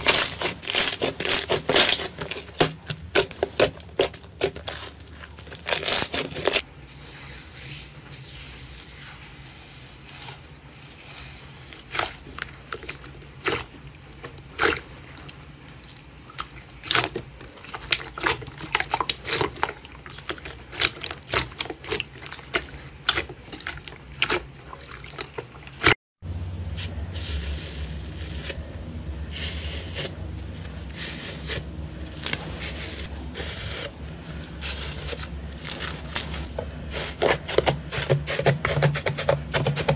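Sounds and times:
foam slime crackling: 0:00.0 - 0:15.8, 0:26.6 - 0:39.9
low hum: 0:26.2 - 0:37.0.

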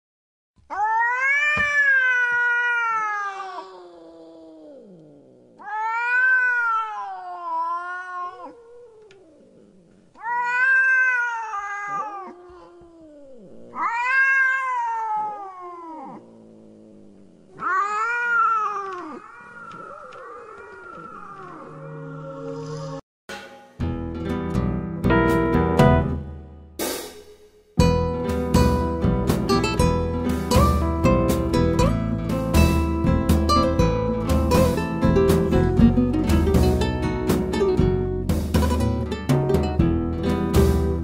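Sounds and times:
cat meowing: 0:00.7 - 0:16.3, 0:17.5 - 0:22.4.

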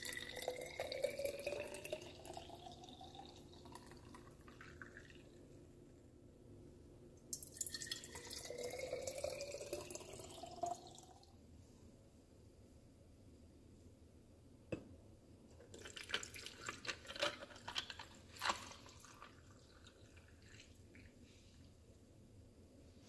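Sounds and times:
liquid pouring into glass bottle: 0:00.0 - 0:05.4, 0:07.3 - 0:11.3, 0:15.6 - 0:21.2.

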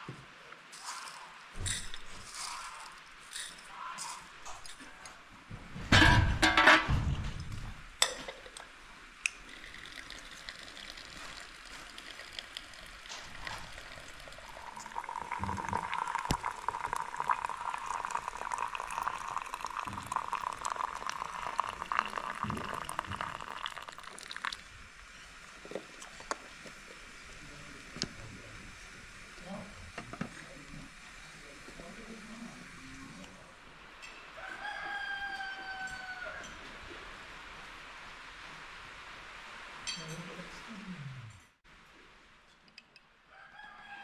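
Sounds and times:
hot water pouring into teapot: 0:09.3 - 0:33.5.

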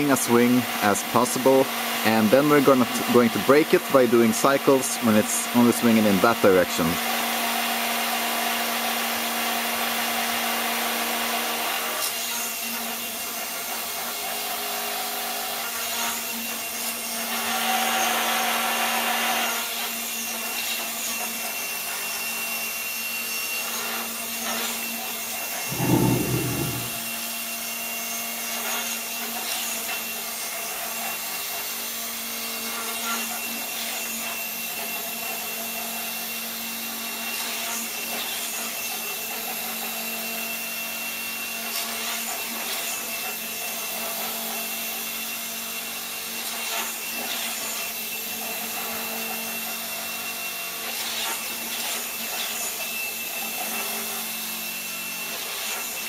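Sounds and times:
short low burst: 0:25.7 - 0:27.1.

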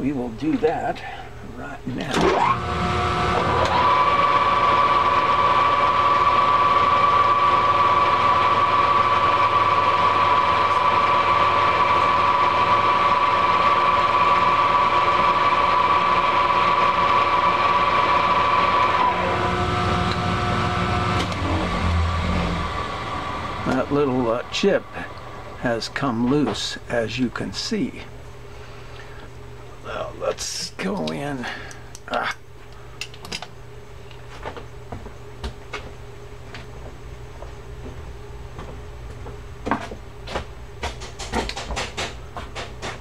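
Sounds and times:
lathe spindle gear whine: 0:02.2 - 0:26.5
low hum: 0:18.5 - 0:30.1.

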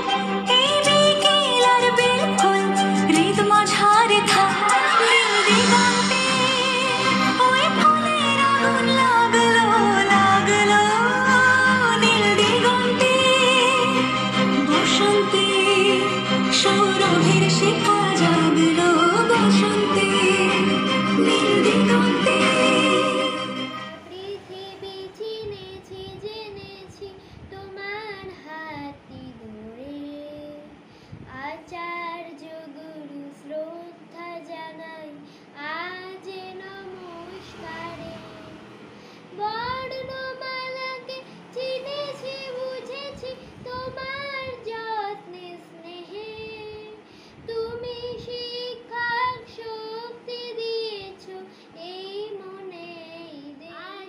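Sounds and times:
boy singing: 0:00.0 - 0:23.3, 0:23.9 - 0:38.6, 0:39.3 - 0:54.0.

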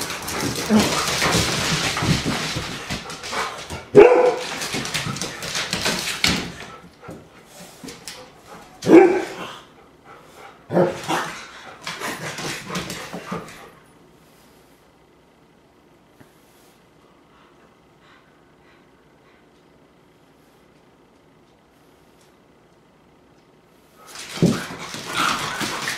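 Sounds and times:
paws clicking on hardwood floor: 0:00.0 - 0:13.9, 0:23.4 - 0:25.9
dog barking: 0:03.9 - 0:04.5, 0:08.8 - 0:09.4.

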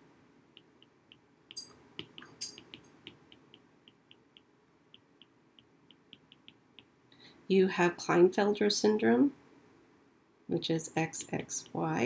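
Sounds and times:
stylus tapping on glass screen: 0:00.6 - 0:07.0.

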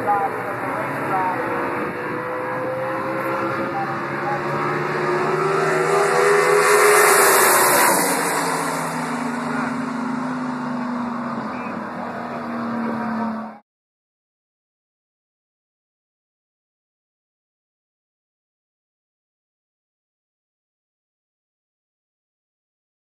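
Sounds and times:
drag cars passing at full throttle: 0:00.0 - 0:13.6.

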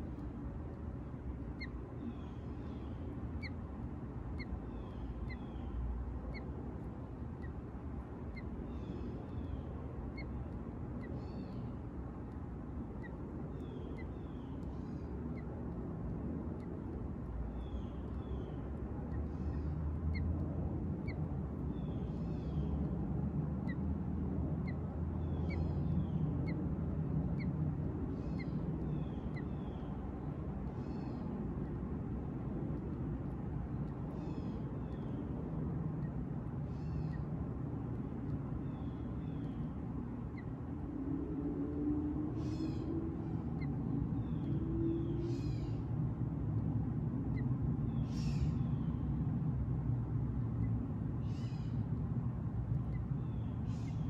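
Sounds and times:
birds chipping: 0:00.0 - 0:15.7, 0:16.4 - 0:20.4, 0:21.0 - 0:22.9, 0:23.5 - 0:32.1, 0:32.7 - 0:40.8, 0:42.3 - 0:54.0
birds slurred calls: 0:24.6 - 0:26.6, 0:27.3 - 0:31.4, 0:33.8 - 0:35.3, 0:36.0 - 0:37.3, 0:42.3 - 0:45.9, 0:47.3 - 0:49.2, 0:50.5 - 0:52.0, 0:52.6 - 0:54.0.

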